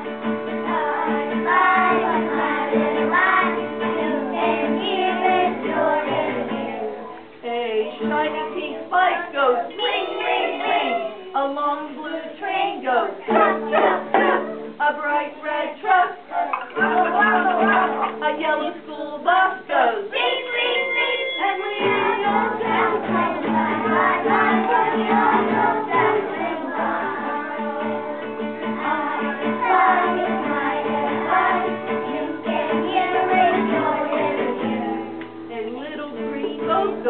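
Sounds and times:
children singing together: 0.0 - 35.5
instrumental accompaniment: 13.2 - 14.8.

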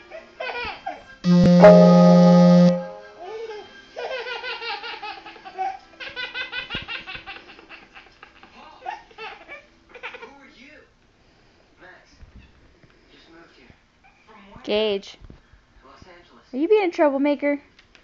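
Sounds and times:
loud steady tone: 1.3 - 3.2
steady electronic note: 1.3 - 3.2.

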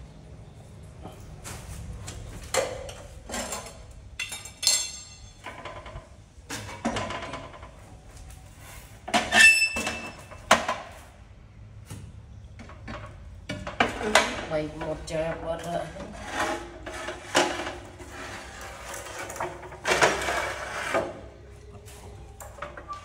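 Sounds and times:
metal objects clinking and scraping: 3.2 - 6.0, 16.0 - 23.0.

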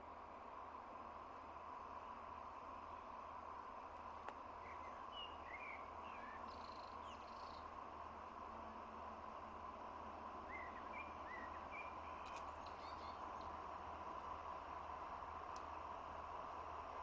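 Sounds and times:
faint steady hum: 0.0 - 17.0
birds chirping: 10.5 - 13.6.

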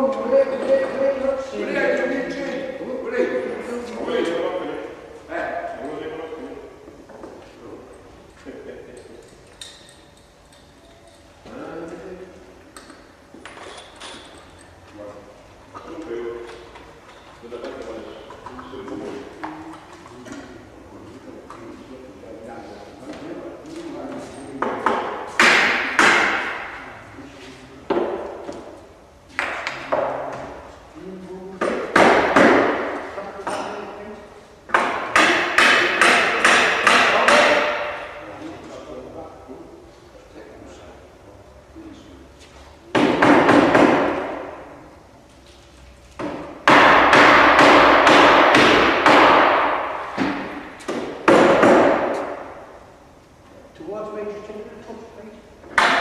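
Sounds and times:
hammer striking wooden planks: 24.6 - 26.8, 31.6 - 33.6, 34.7 - 38.2, 42.9 - 44.6, 46.2 - 52.6, 55.7 - 56.0.

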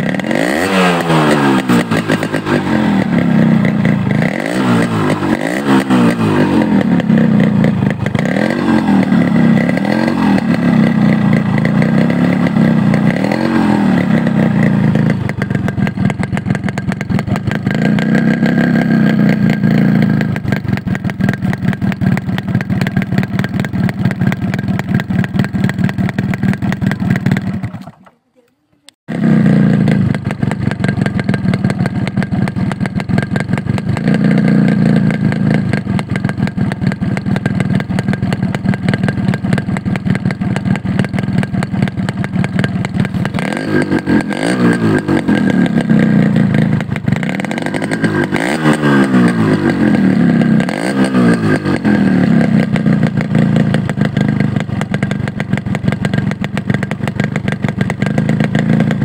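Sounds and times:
motorcycle engine idling and revving: 0.0 - 28.0, 29.0 - 59.0.

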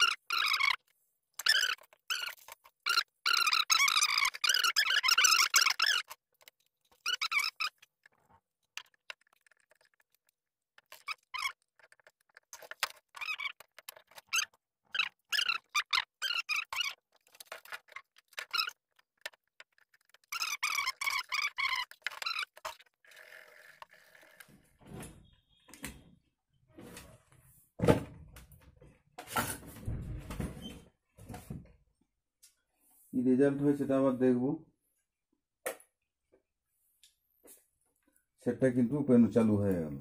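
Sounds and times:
high squeaky chirping: 0.0 - 8.2, 10.8 - 23.3.

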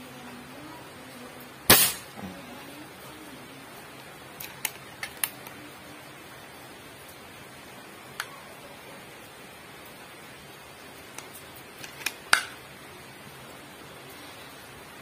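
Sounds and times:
air rifle shot: 1.7 - 2.2.

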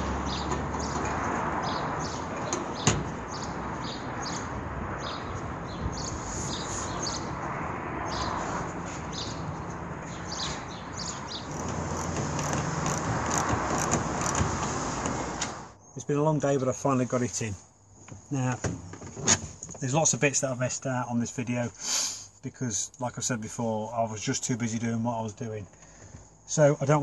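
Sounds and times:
small birds chirping: 0.1 - 12.9
background hiss: 19.8 - 22.8.

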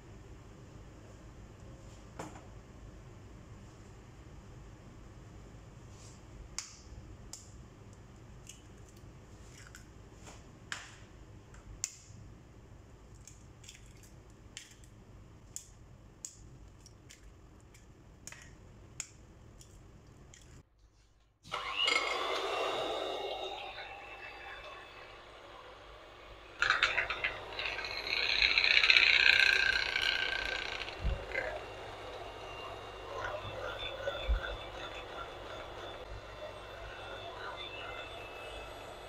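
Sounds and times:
faint room hum: 0.0 - 39.0
electric hand mixer: 21.5 - 33.4.

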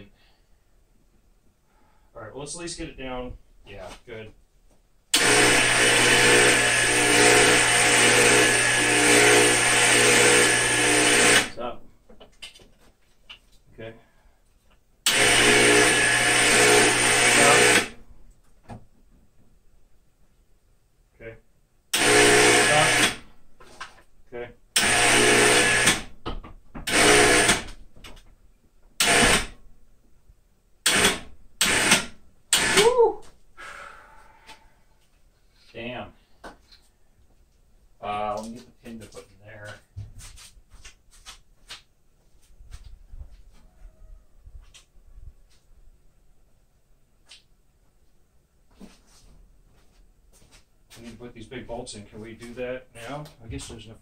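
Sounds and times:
power drill running: 5.1 - 11.6, 15.1 - 18.0, 22.0 - 23.3, 24.8 - 26.1, 26.9 - 27.8, 29.0 - 29.6, 30.9 - 32.9
electric winch motor whine: 5.2 - 11.5, 15.1 - 18.0, 22.0 - 23.2, 24.8 - 26.1, 26.9 - 27.7, 29.0 - 29.5, 30.9 - 32.9.

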